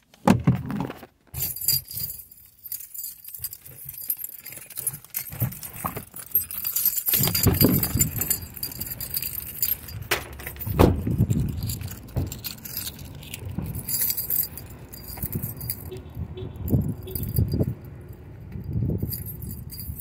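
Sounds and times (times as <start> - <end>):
keys jangling: 1.4 - 20.0
low bumps: 1.4 - 20.0.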